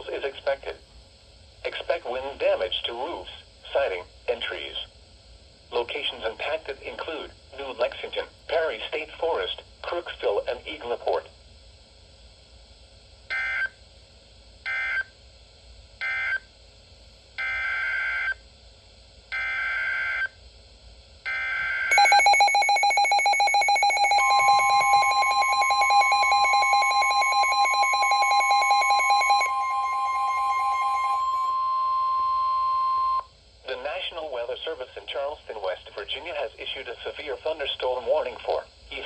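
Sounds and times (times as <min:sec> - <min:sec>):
steady warning alarm tone: 0:19.3 - 0:20.4, 0:21.3 - 0:33.3
pulsing alarm beep: 0:21.3 - 0:33.2
screechy data bursts: 0:21.7 - 0:31.6.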